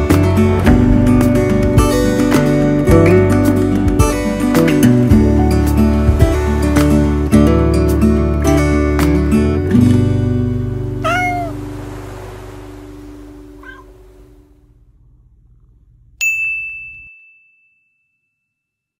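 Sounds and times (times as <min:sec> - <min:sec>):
cat meowing: 0:10.9 - 0:11.7, 0:13.4 - 0:14.3
bright ding: 0:16.2 - 0:18.4.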